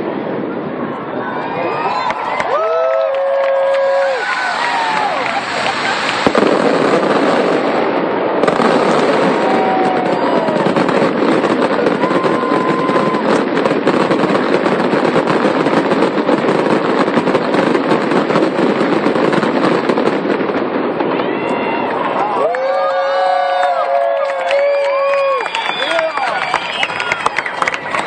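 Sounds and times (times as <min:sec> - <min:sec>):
fireworks crackling and popping: 0:01.7 - 0:28.0
firework whistles: 0:03.6 - 0:22.3, 0:24.5 - 0:28.0.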